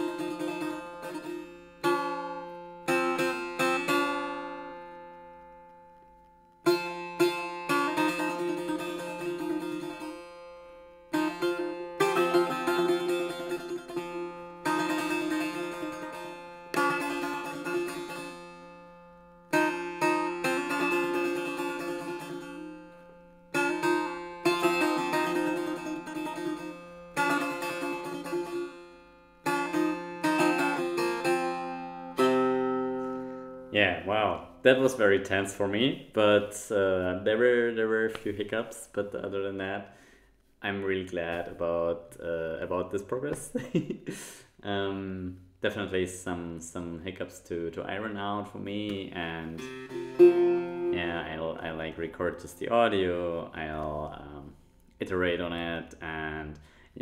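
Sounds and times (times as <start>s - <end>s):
plucked setar notes: 0.0s - 35.9s, 48.7s - 56.6s.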